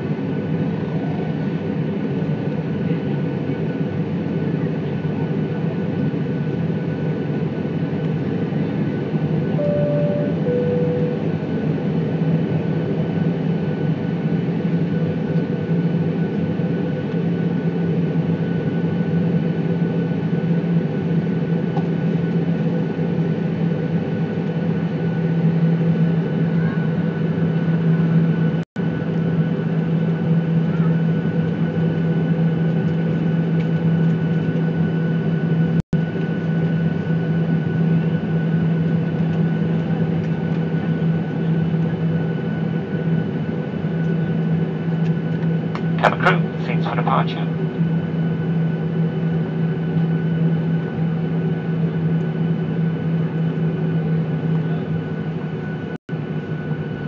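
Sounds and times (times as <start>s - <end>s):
jet engines rumbling: 0.0s - 56.9s
two-note cabin chime: 9.6s - 11.3s.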